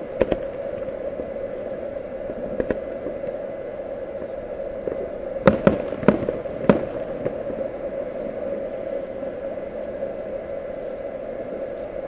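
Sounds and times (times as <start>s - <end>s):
steady hum: 0.0s - 12.0s
distant firework booms: 5.4s - 7.6s.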